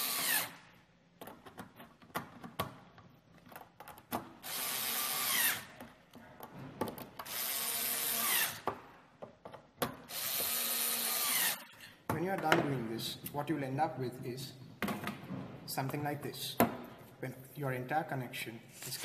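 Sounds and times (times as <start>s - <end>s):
cordless drill spinning nuts: 0.0s - 0.6s, 4.4s - 5.7s, 7.2s - 8.6s, 10.1s - 11.6s.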